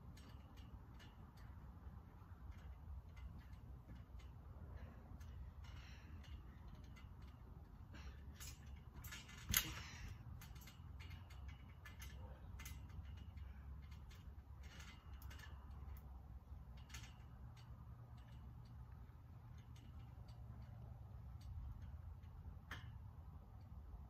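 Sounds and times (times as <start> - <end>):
trampoline springs creaking: 0.0 - 24.0
thump of landing on trampoline: 8.4 - 10.7.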